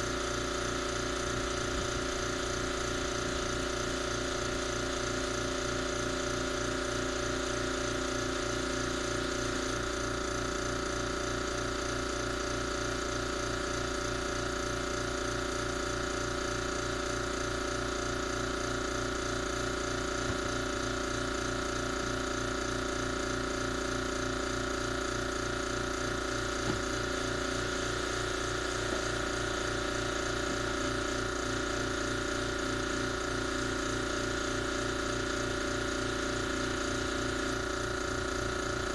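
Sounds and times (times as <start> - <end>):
engine idling: 0.0 - 38.9.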